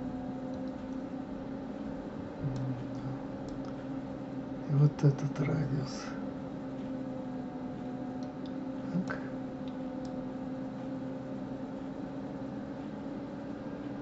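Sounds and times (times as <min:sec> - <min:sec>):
low electrical hum: 0:00.0 - 0:14.0
computer mouse clicks: 0:00.5 - 0:01.0, 0:03.4 - 0:03.8.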